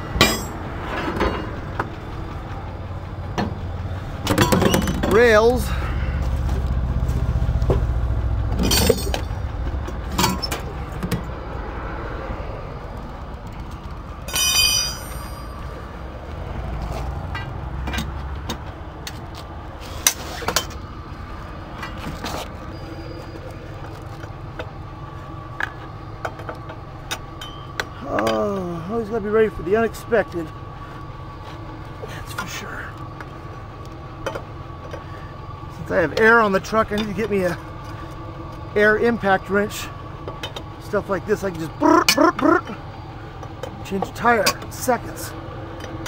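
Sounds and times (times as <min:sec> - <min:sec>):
low rumble: 0:00.0 - 0:28.1
metal clanks of hand tools: 0:00.2 - 0:01.5, 0:04.2 - 0:05.2, 0:08.6 - 0:09.3, 0:10.1 - 0:11.2, 0:14.3 - 0:15.6, 0:27.4 - 0:28.4
short squeal: 0:22.7 - 0:23.4.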